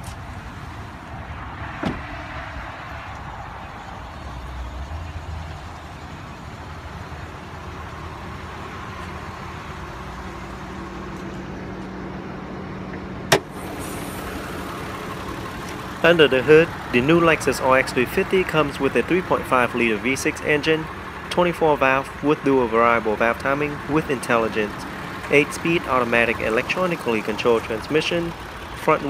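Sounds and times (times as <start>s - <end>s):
car engine idling: 0.0s - 29.0s
hood release click: 13.3s - 13.5s.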